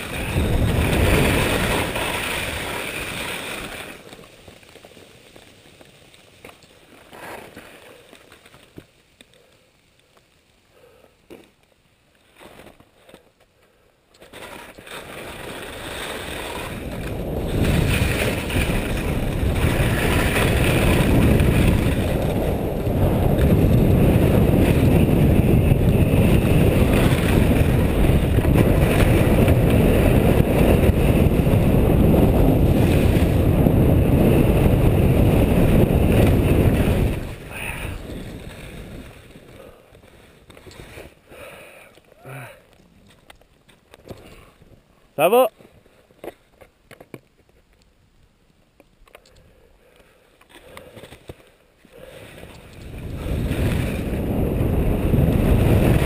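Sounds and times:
wind rushing over microphone: 0.0s - 3.8s, 16.1s - 39.8s, 52.0s - 56.0s
skis sliding on snow: 0.0s - 13.4s, 14.2s - 44.7s, 50.0s - 56.0s.

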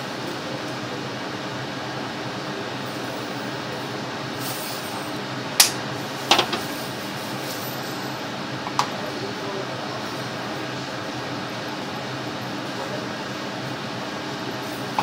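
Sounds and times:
steady background hum: 0.0s - 15.0s
items knocking on metal stovetop: 5.6s - 6.7s.

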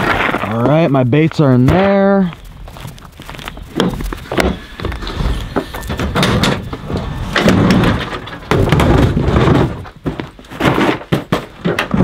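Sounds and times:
gear clunking in truck bed: 3.8s - 12.0s.

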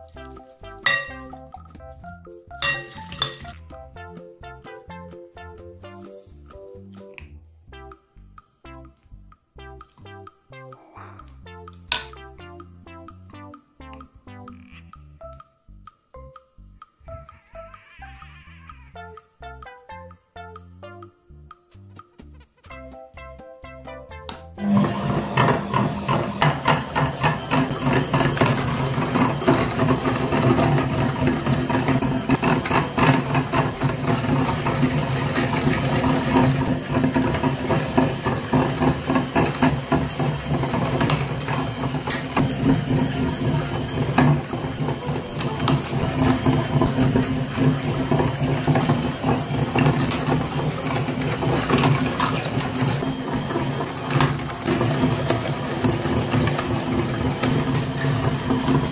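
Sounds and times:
meat grinder motor hum: 24.6s - 58.9s
hard candy cracking in grinder: 24.9s - 58.9s.

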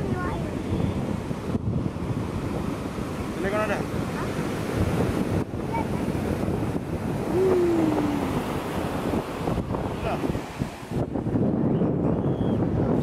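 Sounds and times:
wind buffeting microphone: 0.0s - 13.0s
surf breaking: 2.4s - 11.2s.

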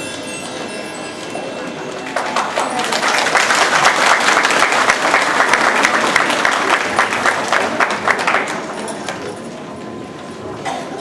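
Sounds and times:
audience applauding: 2.0s - 9.2s.

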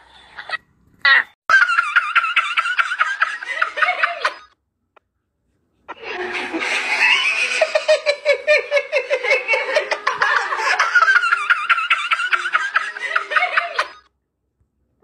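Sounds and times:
person laughing hard: 1.5s - 4.5s, 5.9s - 14.0s.

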